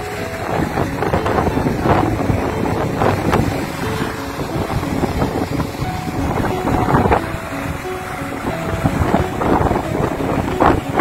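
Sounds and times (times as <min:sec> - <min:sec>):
waves breaking on beach: 0:00.0 - 0:11.0
wind buffeting microphone: 0:00.0 - 0:11.0.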